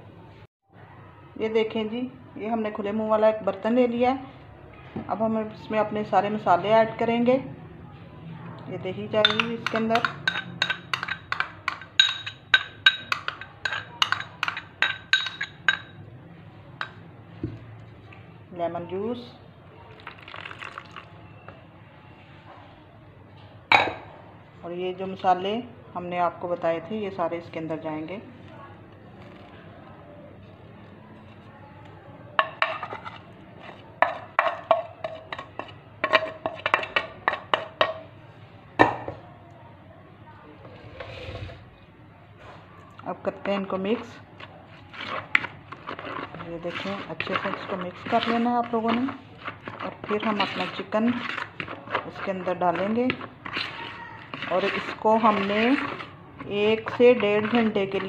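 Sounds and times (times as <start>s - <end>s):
spoon clinking against dish: 9.2s - 16.0s.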